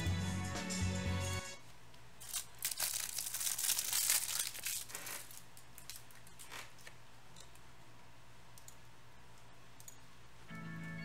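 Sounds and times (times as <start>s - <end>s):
plastic wrapper tearing and crinkling: 2.2s - 6.7s.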